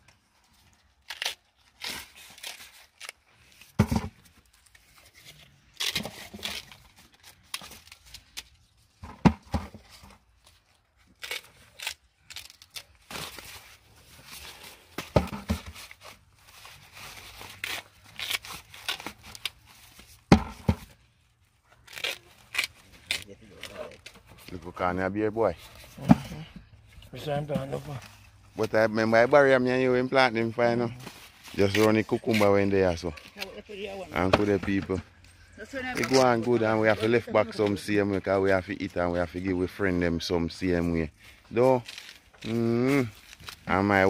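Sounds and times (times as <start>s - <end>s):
corn husks tearing: 0.0s - 3.8s, 4.4s - 8.8s, 9.9s - 14.9s, 15.7s - 20.2s, 21.7s - 25.6s, 28.6s - 34.6s, 35.8s - 37.2s, 40.6s - 44.0s.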